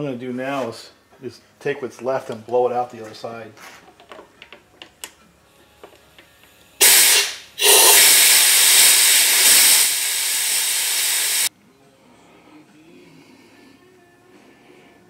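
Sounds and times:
compressed air blow gun blasting: 6.8 - 11.5.

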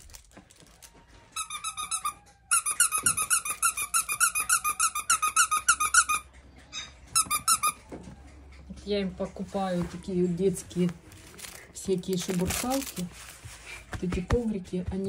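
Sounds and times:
squeaky toy squeaking: 1.4 - 7.9.

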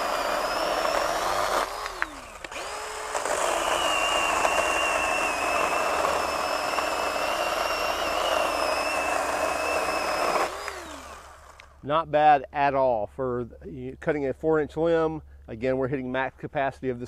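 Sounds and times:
electric chainsaw cutting wood: 0.0 - 11.8.

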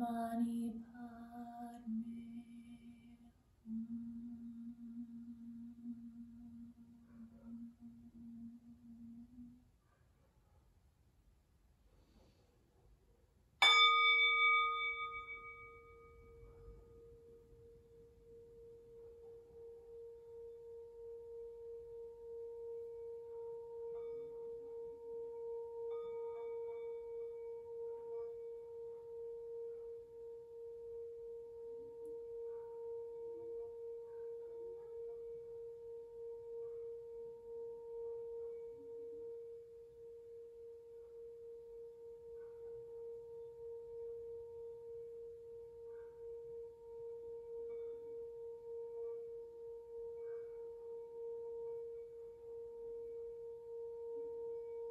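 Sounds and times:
singing bowl rim rubbed tone: 0.0 - 9.8, 13.6 - 54.9
singing bowl struck with mallet: 13.6 - 17.4, 18.3 - 54.9.

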